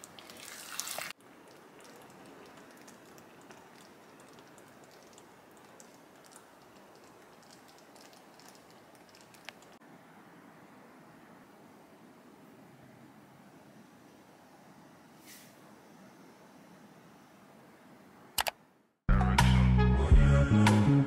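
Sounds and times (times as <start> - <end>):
sauce simmering in frying pan: 0.0 - 9.8.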